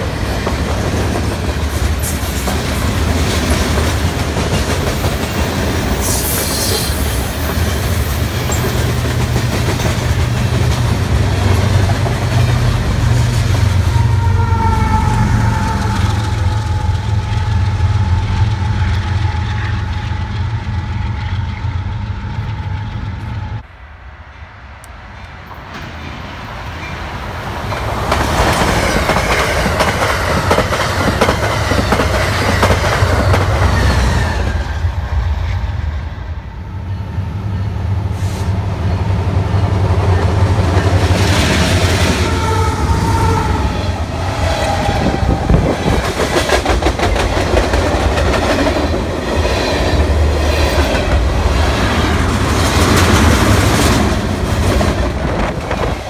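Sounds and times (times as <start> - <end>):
train wheels clickety-clack: 0.0 - 14.0, 25.2 - 34.8, 43.7 - 56.0
locomotive engine humming: 7.0 - 25.9, 26.5 - 56.0.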